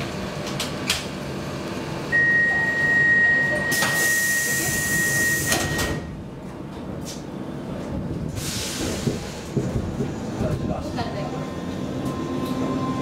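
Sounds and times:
high door warning tone: 2.1s - 6.2s
sliding doors hissing shut: 8.3s - 9.6s.

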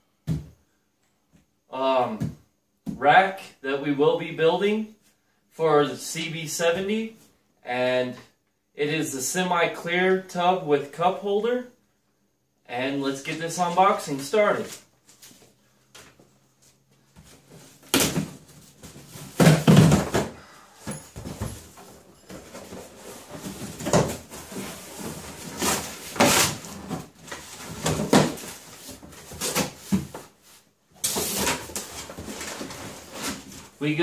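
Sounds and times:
knocks and thuds on box: 19.2s - 21.6s
cardboard scraping and rustling: 21.0s - 33.8s.

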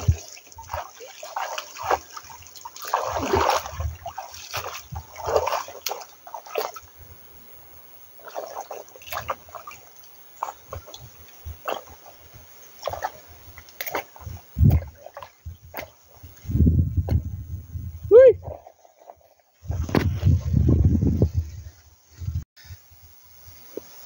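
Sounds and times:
hands splashing in water: 0.0s - 6.8s
splashing steps wading: 0.0s - 7.0s, 8.2s - 16.4s.

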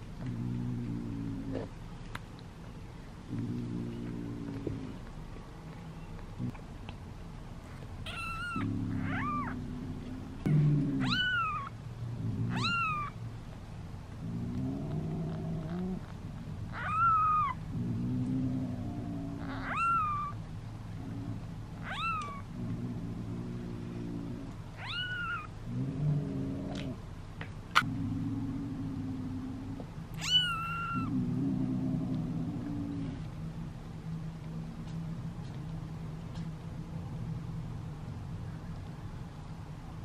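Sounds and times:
kitten mewing: 8.1s - 9.6s, 10.5s - 11.7s, 12.5s - 13.1s, 24.8s - 25.5s, 30.2s - 31.1s.

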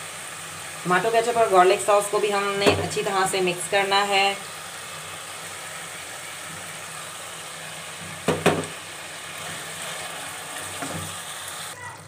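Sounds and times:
chicken sizzling in a pan: 0.0s - 12.0s
spatula knocking against pan: 8.2s - 8.7s.

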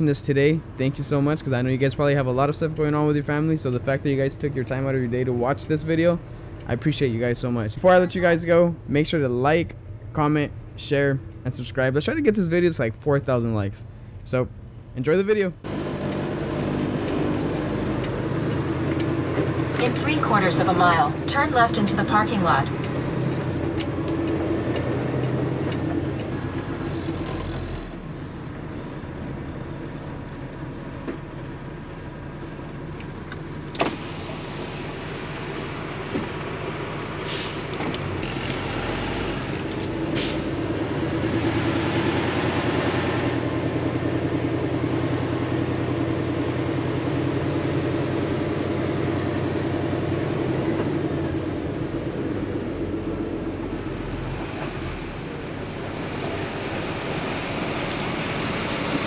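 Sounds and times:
diesel truck engine running: 0.0s - 59.0s
short hisses of air: 37.2s - 37.7s.

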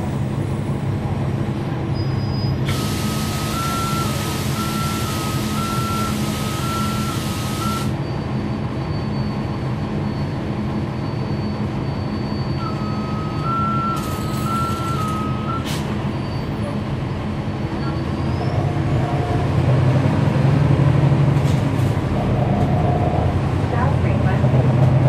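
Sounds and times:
bus diesel engine running: 0.0s - 25.0s
two-tone warning beeper: 2.4s - 8.0s, 11.1s - 16.6s.

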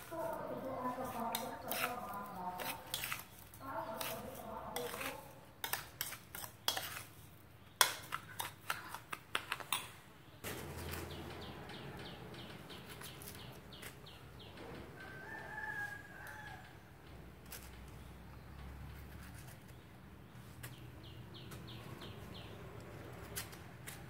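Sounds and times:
rooster crowing: 14.9s - 16.8s.

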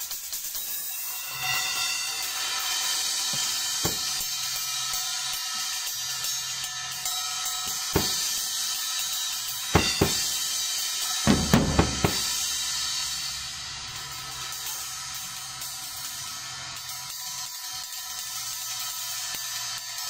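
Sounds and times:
cymbal wash: 0.0s - 20.0s
drum strokes: 1.6s - 5.1s, 7.4s - 13.4s.

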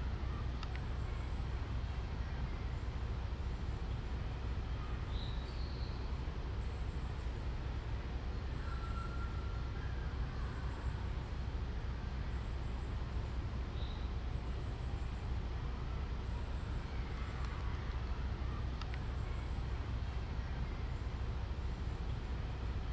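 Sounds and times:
outdoor background rumble: 0.0s - 22.9s
faint high chirps: 8.4s - 11.3s.

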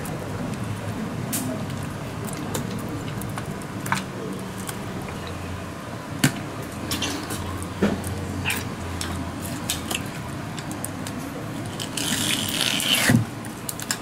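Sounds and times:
soft squishing of fish: 0.0s - 5.6s.

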